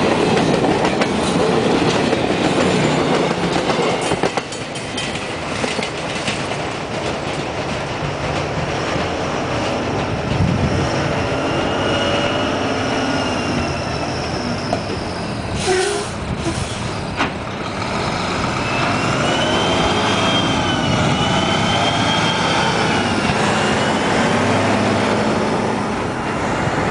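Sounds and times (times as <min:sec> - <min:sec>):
air brake hiss: 0:15.5 - 0:17.0.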